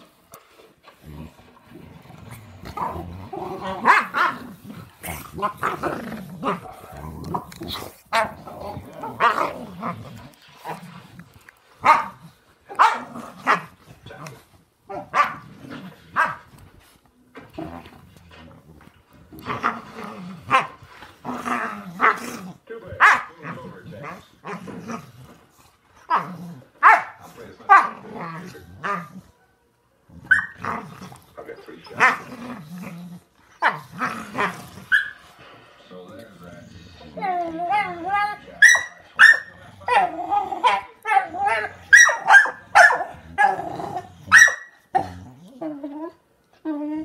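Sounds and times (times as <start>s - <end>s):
dogs growling: 0.0s - 47.0s
dogs barking: 3.6s - 4.4s, 11.8s - 13.7s, 14.9s - 15.4s, 16.2s - 16.5s, 23.0s - 23.4s, 26.8s - 28.0s, 30.3s - 30.6s, 34.9s - 35.2s, 37.7s - 43.6s, 44.3s - 44.8s.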